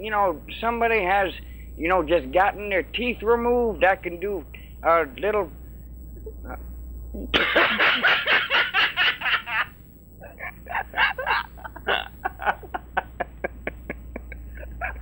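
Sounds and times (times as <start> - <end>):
person laughing hard: 7.4 - 15.0.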